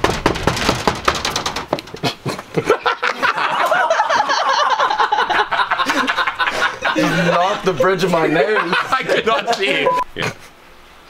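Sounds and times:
people laughing: 2.0s - 10.5s.

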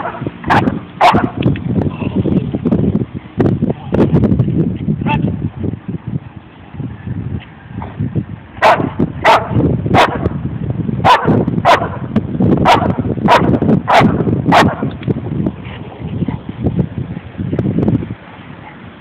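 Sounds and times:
dog barking: 0.0s - 1.4s, 8.6s - 10.3s, 11.0s - 12.0s, 12.6s - 14.9s
low background rumble: 0.0s - 19.0s.

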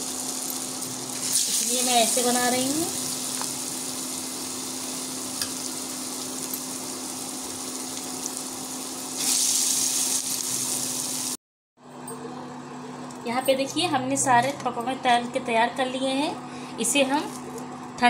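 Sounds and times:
fritters sizzling in hot oil: 0.0s - 11.4s.

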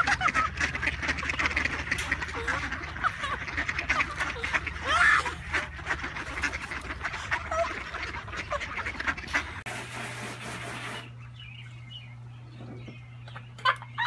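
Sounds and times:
ducklings peeping: 0.0s - 9.7s, 10.6s - 14.0s
ducks quacking: 0.0s - 10.0s.

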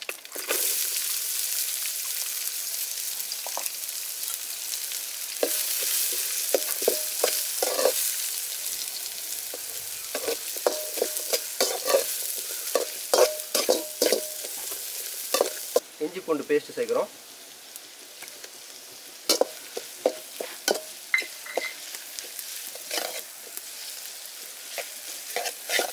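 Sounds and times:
onions sizzling in hot oil: 0.0s - 25.9s
ladle scraping metal pan: 6.5s - 8.0s, 10.1s - 14.7s, 22.7s - 23.3s, 24.7s - 25.9s.

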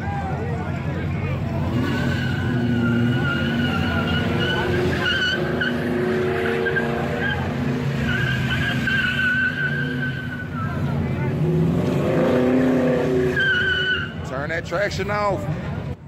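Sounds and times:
tires squealing: 0.0s - 14.4s
car engine revving high: 1.4s - 14.2s.

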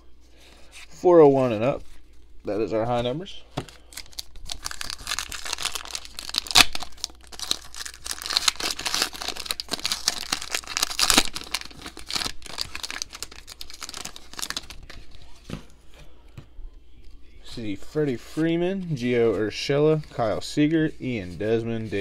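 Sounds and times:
wrapper tearing and crinkling: 3.8s - 15.2s.

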